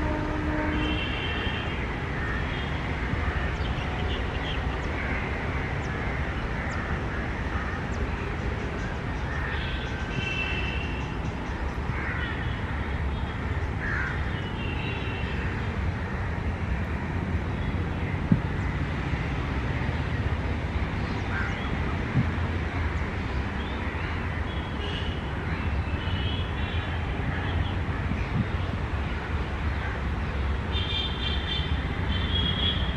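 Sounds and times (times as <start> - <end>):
electric locomotive rumble: 0.0 - 2.3.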